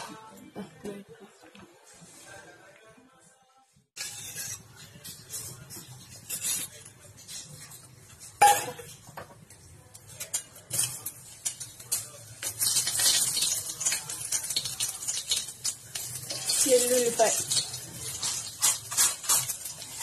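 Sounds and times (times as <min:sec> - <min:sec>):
spoon and cookware clinking: 0:04.0 - 0:09.4, 0:10.1 - 0:20.0
oil sizzling in a pan: 0:10.8 - 0:20.0.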